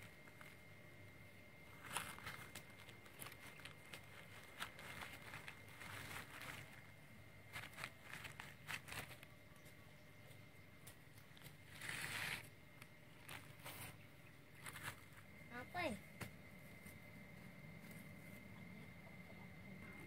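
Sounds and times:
hands rustling: 1.6 - 9.8.

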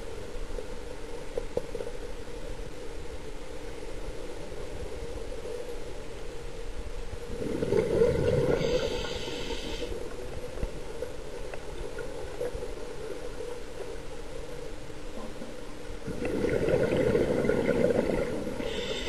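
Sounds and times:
steady low hum: 0.0 - 19.0
exhaled bubbles rushing: 7.3 - 9.3, 16.0 - 18.7
regulator inhalation hiss: 8.5 - 10.0, 18.6 - 19.0.

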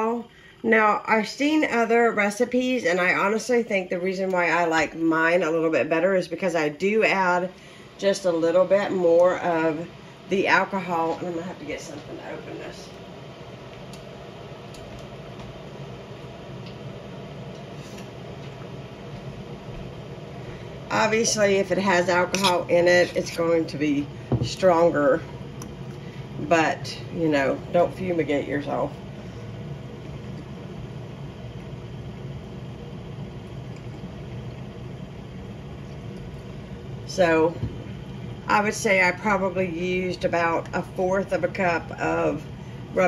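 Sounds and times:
mechanical room hum: 0.0 - 43.0.

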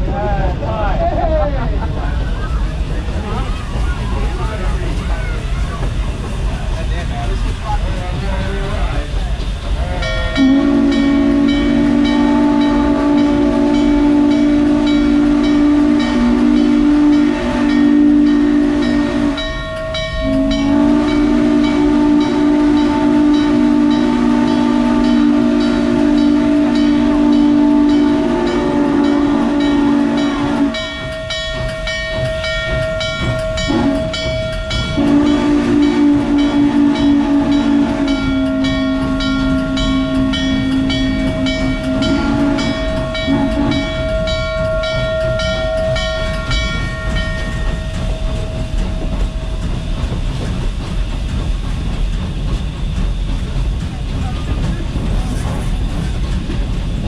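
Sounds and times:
moving train clicking: 0.0 - 57.0
steam whistle blowing: 10.4 - 31.1, 33.6 - 47.7.

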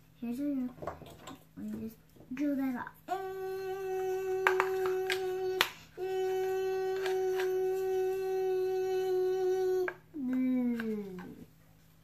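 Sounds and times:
child humming a steady note: 3.1 - 11.5.

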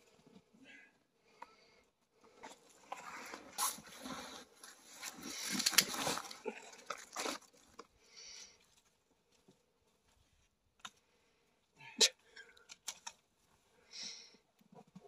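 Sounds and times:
crunching snow and rustling brush: 3.0 - 7.7.

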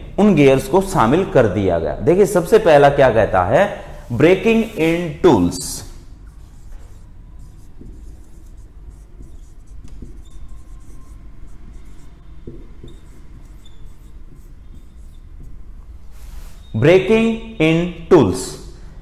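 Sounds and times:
marker scratching on whiteboard: 4.1 - 16.8
marker squeaks: 6.3 - 17.7.

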